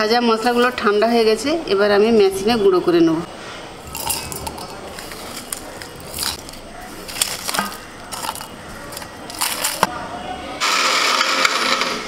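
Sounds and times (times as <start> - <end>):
dry spices rattling and crackling: 3.8 - 9.9.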